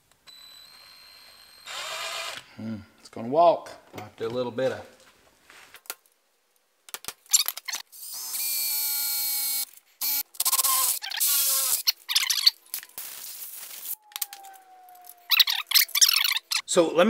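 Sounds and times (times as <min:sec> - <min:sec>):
cordless drill whining: 0:00.3 - 0:02.5, 0:08.0 - 0:11.9.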